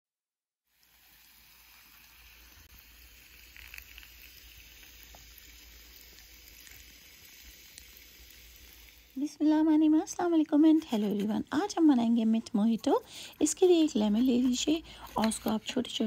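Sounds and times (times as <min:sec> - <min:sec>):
soda pouring into glass: 0:00.7 - 0:09.2
soda fizzing: 0:00.7 - 0:11.8.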